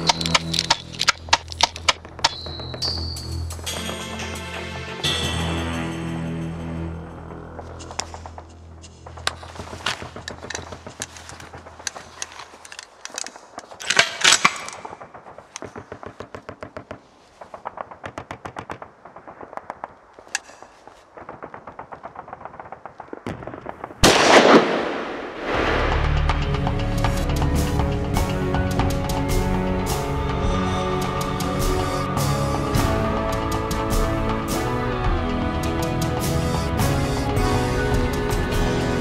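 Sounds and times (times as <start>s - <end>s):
music: 0.0s - 13.3s, 25.5s - 39.0s
machine-gun fire: 21.3s - 26.1s
loud blast: 23.1s - 26.4s
single gunshots: 23.2s - 26.0s.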